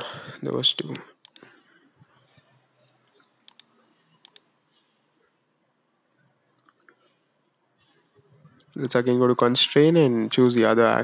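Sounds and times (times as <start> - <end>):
computer mouse clicking: 1.2 - 1.5, 2.8 - 4.5, 8.2 - 9.1, 10.3 - 10.6.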